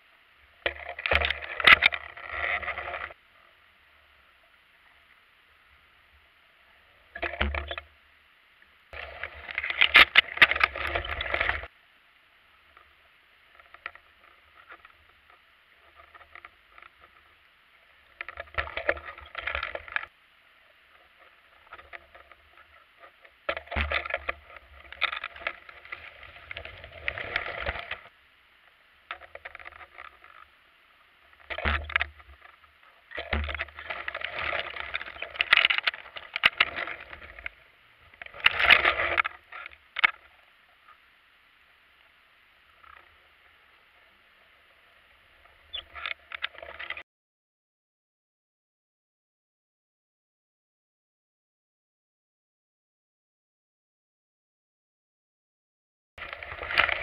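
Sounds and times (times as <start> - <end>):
underwater rushing and rattling: 0.1 - 47.0, 56.2 - 57.0.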